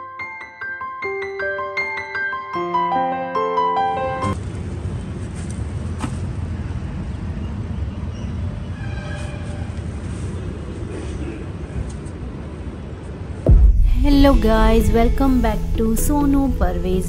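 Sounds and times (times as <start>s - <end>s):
traffic rumble: 4.4s - 8.8s, 9.4s - 17.0s.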